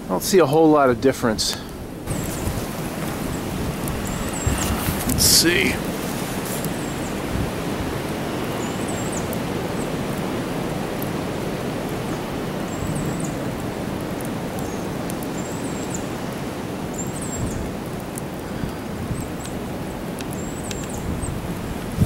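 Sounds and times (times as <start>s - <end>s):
faint fire crackles: 0.0s - 22.0s
fire rushing in stove: 2.0s - 8.6s.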